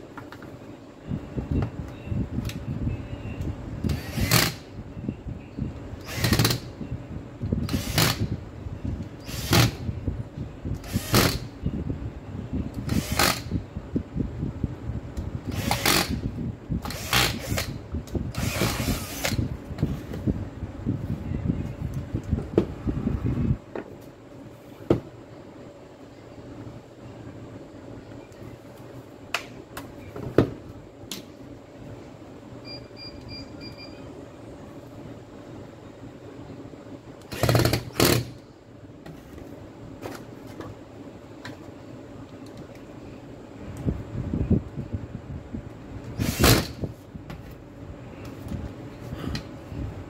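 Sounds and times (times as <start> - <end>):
cordless drill bursts: 3.9 - 4.6, 6.0 - 6.6, 9.2 - 9.8, 12.9 - 13.5, 15.5 - 16.2, 46.2 - 46.8.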